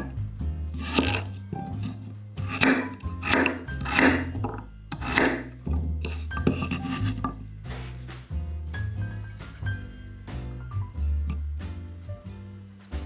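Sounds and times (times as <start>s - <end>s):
background music with bass line: 0.0s - 13.0s
knife slicing onto wooden board: 0.7s - 8.0s.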